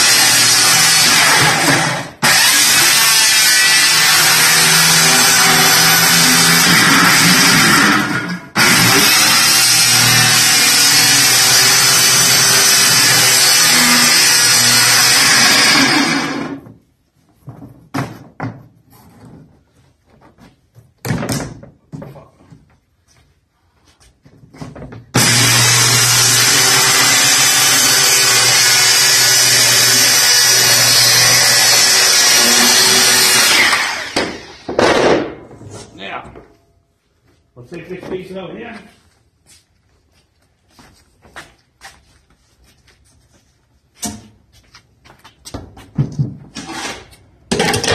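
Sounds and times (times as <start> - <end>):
circular saw cutting plywood: 0.0 - 16.6, 25.2 - 34.8.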